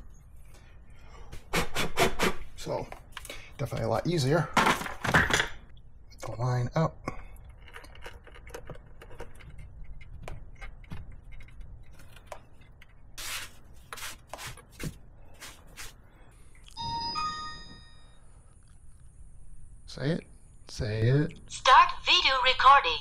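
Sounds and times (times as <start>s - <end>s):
electronic start-up chime: 16.8s - 18.2s.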